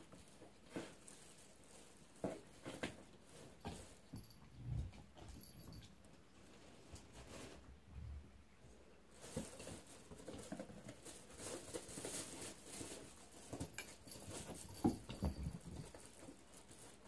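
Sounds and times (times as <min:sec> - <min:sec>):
cat rustling through bags: 0:00.0 - 0:04.2, 0:09.1 - 0:17.0.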